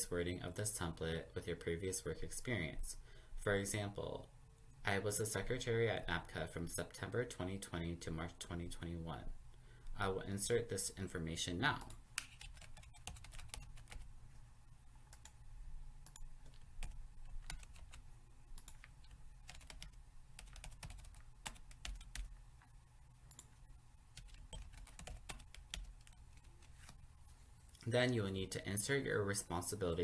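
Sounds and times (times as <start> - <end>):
computer keyboard typing: 11.8 - 14.1, 16.0 - 22.4, 24.1 - 27.0.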